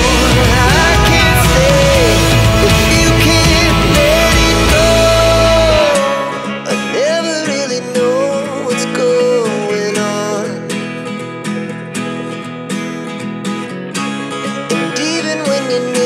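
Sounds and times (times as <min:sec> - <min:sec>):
deep bass: 0:00.0 - 0:06.0
person singing pop melody: 0:00.0 - 0:12.9, 0:14.2 - 0:16.0
acoustic guitar strumming: 0:00.0 - 0:16.0.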